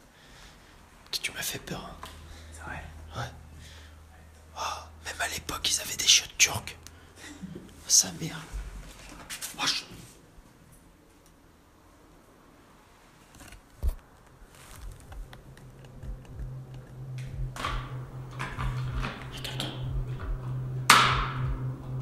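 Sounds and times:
sharp knock: 20.9 - 21.7.

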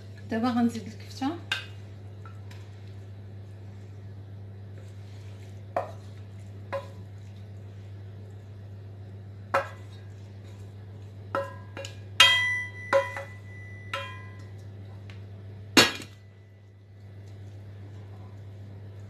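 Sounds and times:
steady low hum: 0.0 - 19.0
wooden spoon knocking on crockery: 11.3 - 14.4.

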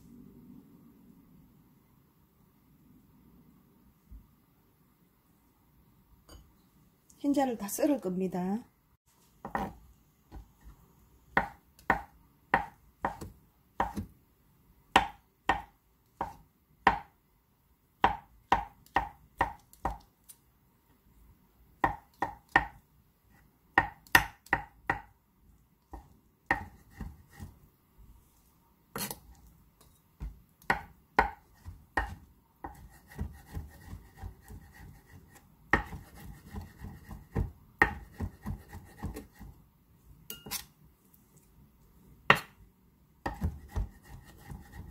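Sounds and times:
knife chopping on wooden board: 9.4 - 10.5, 11.3 - 14.1, 15.0 - 17.1, 18.0 - 20.0, 21.8 - 22.8, 23.7 - 25.1, 25.9 - 27.6, 30.2 - 39.5, 42.3 - 42.5, 43.2 - 44.9.

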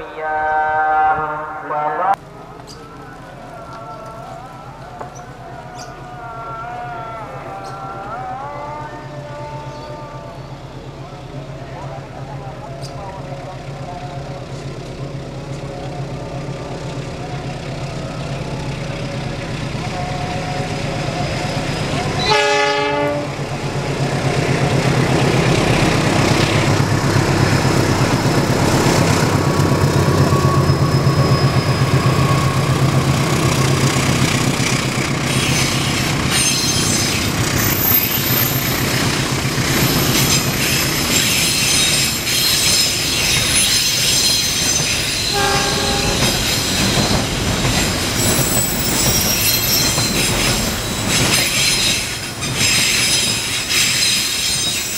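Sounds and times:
locomotive engine rumbling: 0.0 - 54.9
locomotive horn blast: 21.9 - 23.4, 45.2 - 46.4
high-pitched wheel squeal: 30.2 - 32.7, 35.3 - 38.8, 39.8 - 47.3, 48.1 - 54.9
freight wagons clattering over rails: 35.2 - 54.9.

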